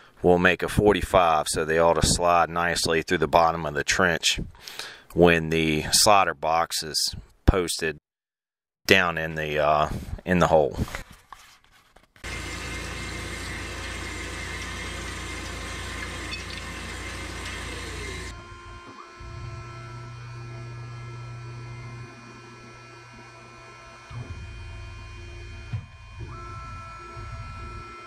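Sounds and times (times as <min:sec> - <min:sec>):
band saw machine hum: 0:12.2 - 0:28.0.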